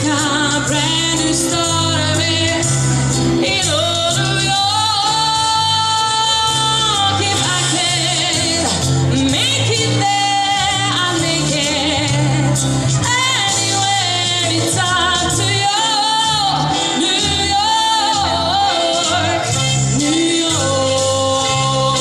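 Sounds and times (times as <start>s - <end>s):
woman singing into a microphone: 0.0s - 22.0s.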